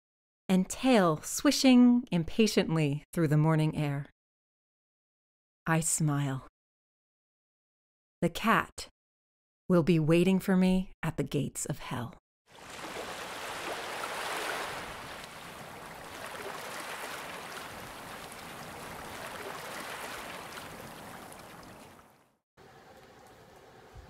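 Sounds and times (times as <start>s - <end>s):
water-like rushing noise: 12.5s - 22.2s.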